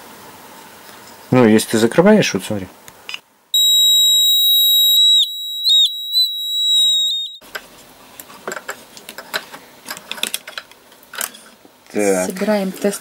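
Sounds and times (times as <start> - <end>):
high-pitched buzzer beep: 3.6 - 7.4.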